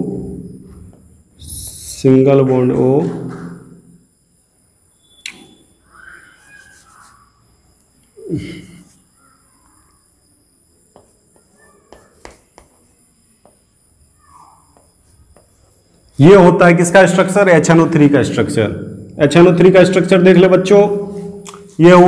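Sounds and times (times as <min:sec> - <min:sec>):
chalk scratching on chalkboard: 0:06.3 - 0:07.4.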